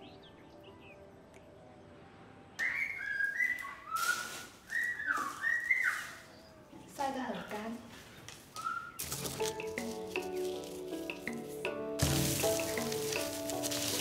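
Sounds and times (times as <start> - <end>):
person whistling sliding notes: 2.6 - 6.2, 8.6 - 9.0
rustling food covers: 7.9 - 14.0.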